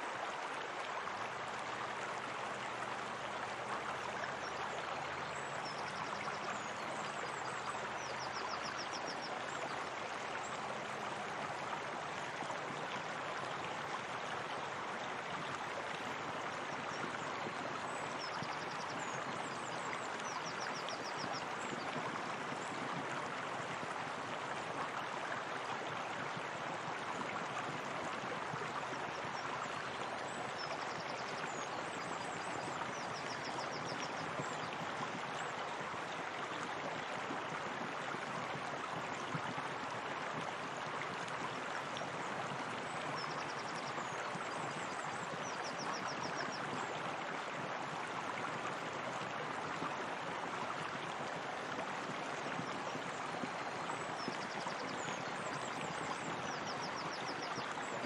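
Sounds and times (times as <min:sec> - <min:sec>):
water flowing over waterfall: 0:00.0 - 0:58.0.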